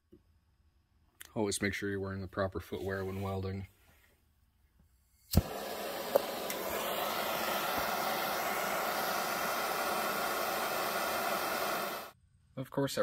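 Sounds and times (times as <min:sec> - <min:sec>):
gas torch hissing: 0:05.3 - 0:12.2.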